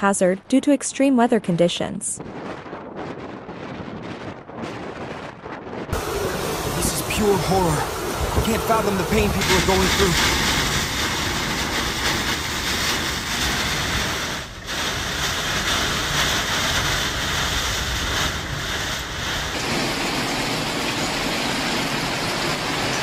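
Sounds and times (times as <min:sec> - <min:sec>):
storm wind: 0:01.5 - 0:23.0
wind buffeting microphone: 0:02.2 - 0:23.0
heavy rain: 0:05.9 - 0:23.0.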